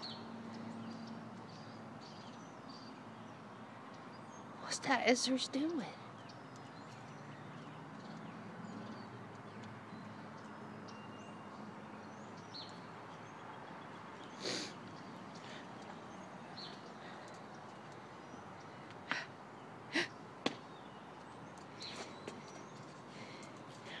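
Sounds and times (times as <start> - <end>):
small ticks: 6.2 - 11.0, 16.6 - 19.0.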